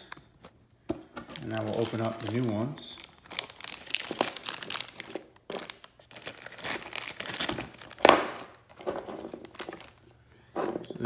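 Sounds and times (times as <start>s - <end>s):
plastic bag crinkling: 1.3s - 10.1s.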